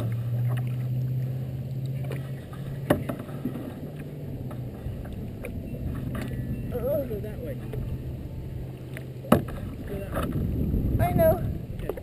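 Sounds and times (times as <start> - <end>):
kayak paddle strokes: 0.0 - 6.5, 8.7 - 10.5
steady low hum: 0.0 - 12.0
water lapping against plastic hull: 0.0 - 12.0.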